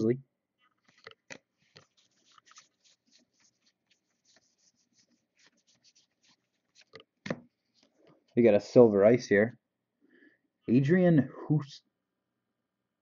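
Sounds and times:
trading cards flipped by hand: 0.6s - 7.9s.

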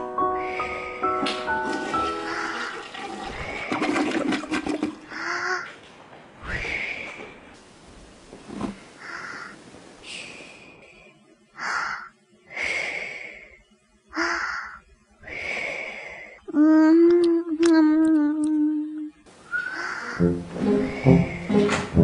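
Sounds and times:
long steady moan: 19.9s - 22.0s.

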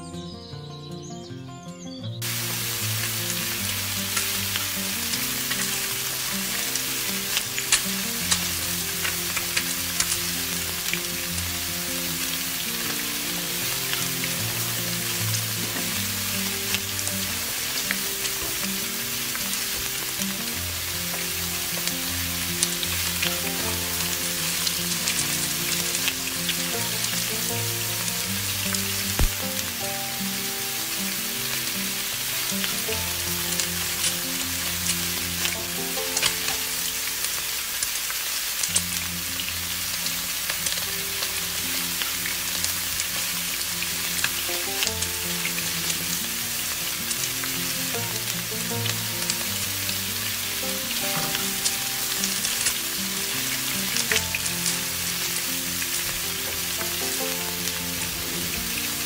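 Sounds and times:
slow instrumental music: 0.0s - 59.0s
fritters sizzling in hot oil: 2.2s - 59.0s
oil crackling and popping: 2.2s - 59.0s.

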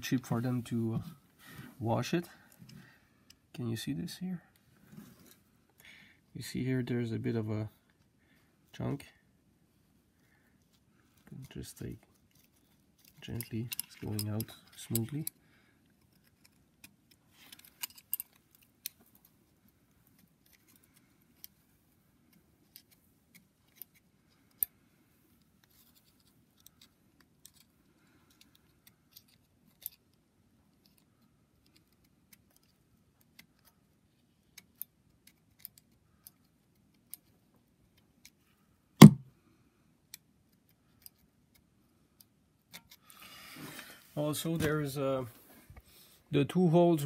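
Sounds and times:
loud knock: 39.0s - 39.2s.

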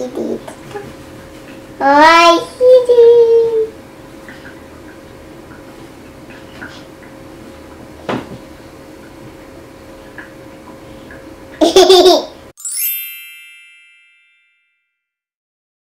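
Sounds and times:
child laughing: 11.6s - 12.4s
sparkling chime effect: 12.6s - 15.0s.

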